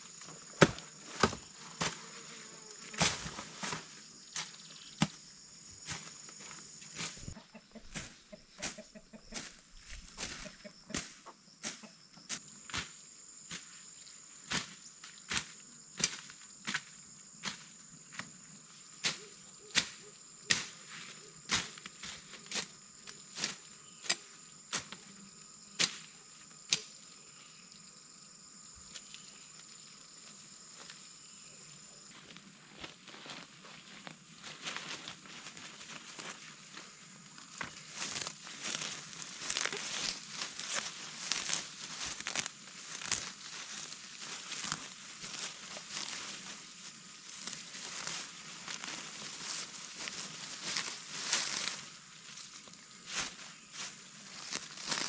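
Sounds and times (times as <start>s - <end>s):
high insect buzz: 0.0s - 55.0s
blade chopping into soil: 0.5s - 2.1s, 25.8s - 26.1s.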